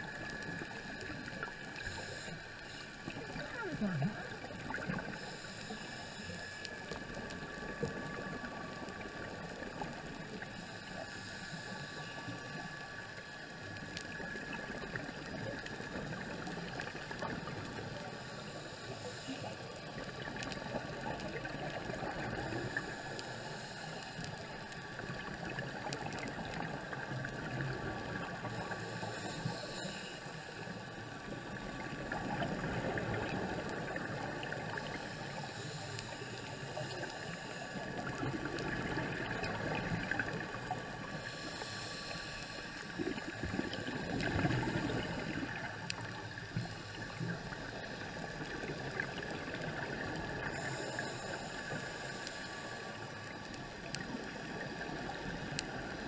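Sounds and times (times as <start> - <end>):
faint steady tones: 0.0 - 56.0
underwater gurgling and bubbling: 0.0 - 56.0
faint clicks: 0.2 - 3.4, 4.6 - 56.0.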